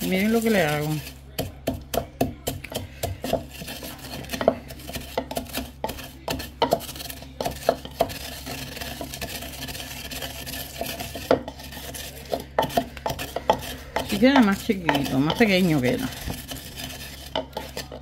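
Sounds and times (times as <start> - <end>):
wooden pestle pounding in mortar: 0.0 - 18.0.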